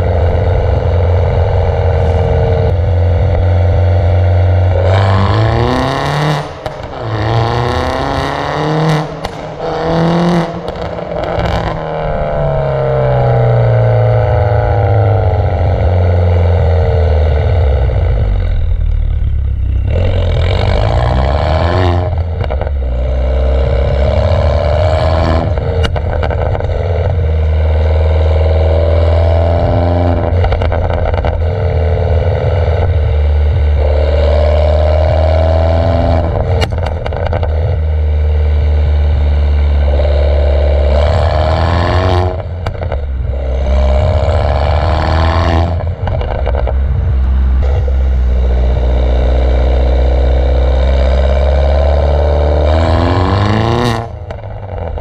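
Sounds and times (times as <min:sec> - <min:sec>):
car exhaust revving: 0:00.0 - 0:55.0
exhaust pops and crackles: 0:08.9 - 0:12.7, 0:22.0 - 0:22.8, 0:25.3 - 0:28.0, 0:30.1 - 0:34.3, 0:36.2 - 0:38.0, 0:42.2 - 0:44.9, 0:45.7 - 0:49.0, 0:52.6 - 0:55.0.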